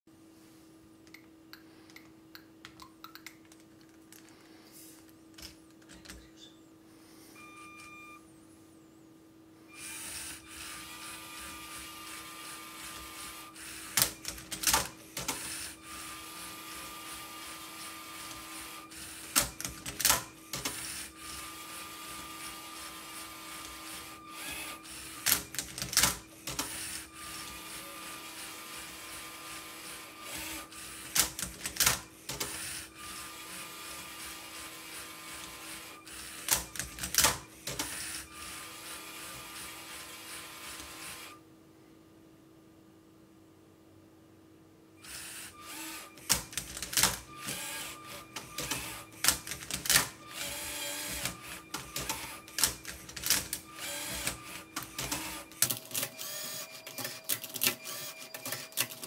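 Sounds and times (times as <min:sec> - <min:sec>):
robot motors whirring: 0:09.8 - 0:31.2, 0:45.0 - 0:46.4, 0:47.0 - 0:58.9.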